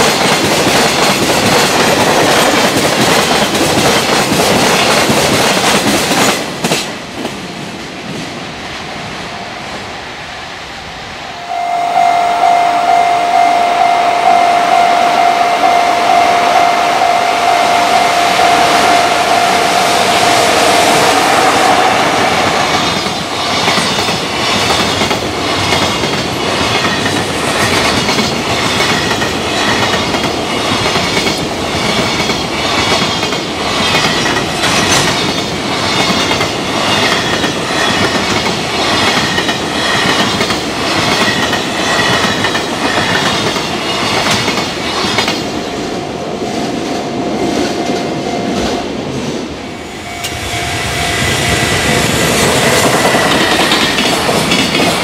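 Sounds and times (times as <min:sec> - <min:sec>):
train wheels clattering over rail joints: 0:00.0 - 0:07.5, 0:22.7 - 0:45.7, 0:52.2 - 0:55.0
approaching train rumble: 0:00.0 - 0:55.0
level crossing warning bell: 0:11.4 - 0:21.1.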